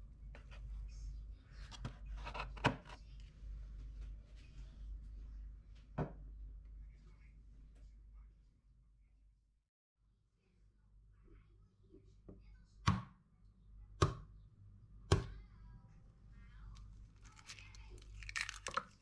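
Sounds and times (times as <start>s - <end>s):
rustling: 17.1s - 19.0s.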